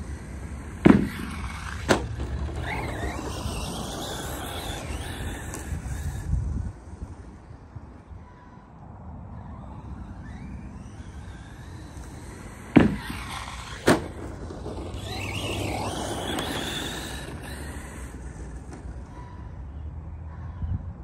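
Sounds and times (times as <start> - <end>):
electric motor whining: 0.0 - 8.4, 9.4 - 19.5
tyre noise on dirt: 0.2 - 7.0, 10.3 - 19.2.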